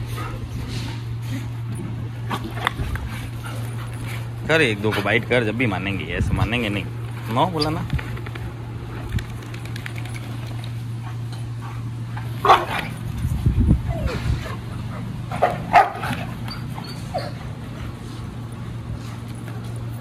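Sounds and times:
dogs barking and yelping: 7.6s - 19.9s
dog whining: 13.8s - 14.6s, 16.1s - 17.5s.

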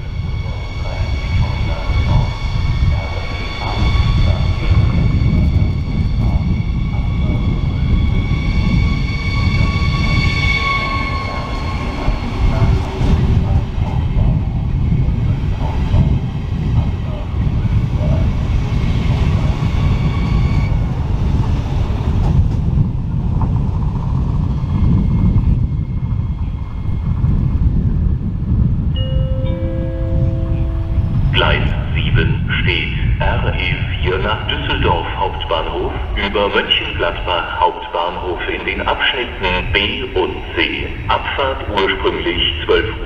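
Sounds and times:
electric train motors whining: 0.0s - 27.1s
wheels rumbling on rails: 0.0s - 43.0s.

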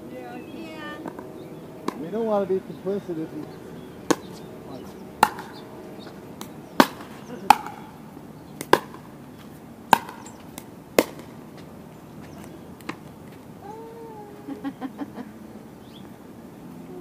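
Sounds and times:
pickleball popping off paddles: 1.8s - 2.1s, 4.1s - 4.4s, 5.2s - 5.6s, 6.4s - 7.9s, 8.6s - 9.1s, 9.9s - 11.4s
ball bouncing on hard court: 4.1s - 4.4s, 8.6s - 9.1s, 9.9s - 11.3s.

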